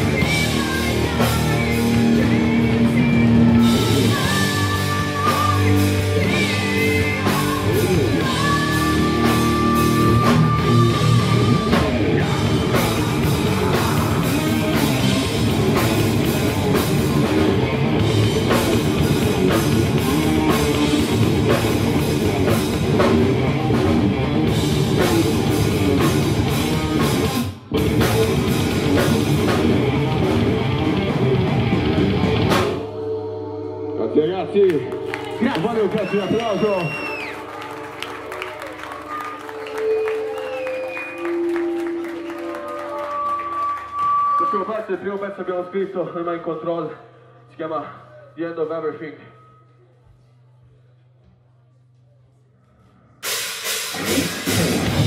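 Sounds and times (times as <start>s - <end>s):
person singing: 0.0s - 15.3s
drum kit: 0.0s - 32.9s, 53.2s - 55.0s
distorted electric guitars: 0.0s - 38.6s, 53.0s - 55.0s
bass guitar: 0.0s - 43.1s, 47.5s - 55.0s.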